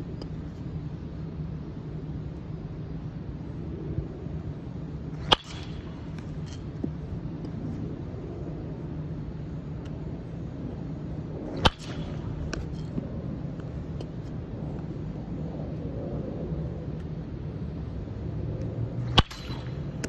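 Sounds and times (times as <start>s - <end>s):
low background hum: 0.0s - 20.0s
baseball bat hitting ball: 5.2s - 7.5s, 11.4s - 14.4s, 19.0s - 20.0s.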